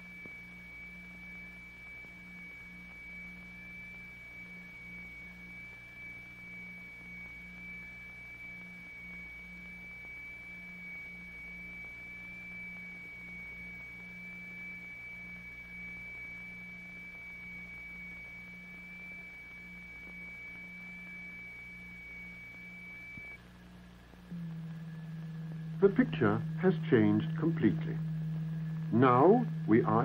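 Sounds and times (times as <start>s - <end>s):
high pure test tone: 0.0s - 23.4s, 24.3s - 30.0s
throbbing low hum: 24.2s - 30.0s.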